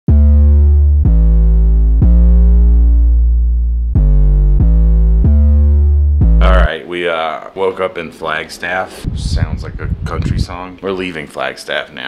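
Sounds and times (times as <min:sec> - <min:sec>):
deep bass: 0:00.1 - 0:06.7, 0:09.0 - 0:10.7
synthesizer chords: 0:00.1 - 0:06.8.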